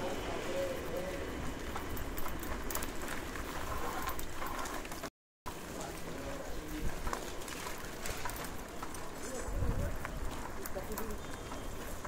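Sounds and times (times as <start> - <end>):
low street rumble: 0.0 - 12.0.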